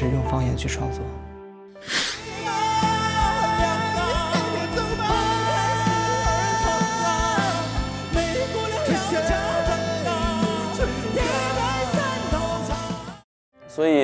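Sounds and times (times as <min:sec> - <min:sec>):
instrumental backing with steady beat: 0:02.2 - 0:13.2
man singing: 0:02.2 - 0:13.2.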